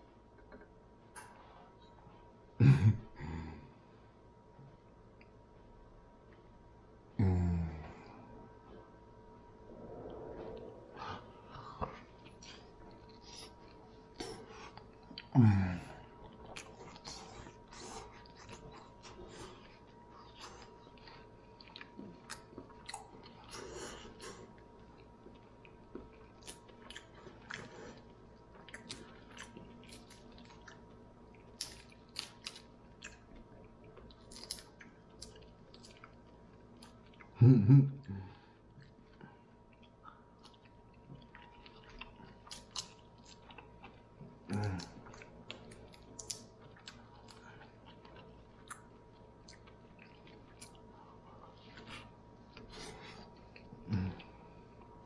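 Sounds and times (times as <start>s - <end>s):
chewing: 10.0s - 37.4s, 38.6s - 54.9s.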